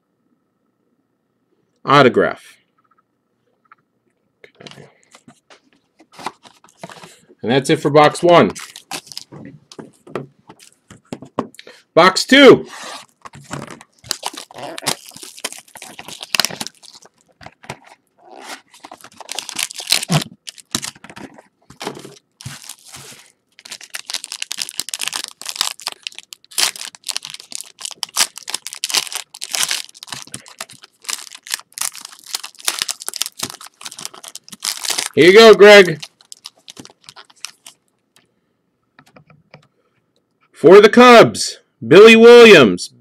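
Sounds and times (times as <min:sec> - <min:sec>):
plastic wrapping crinkling and tearing: 0:08.6 - 0:10.0, 0:13.0 - 0:37.8.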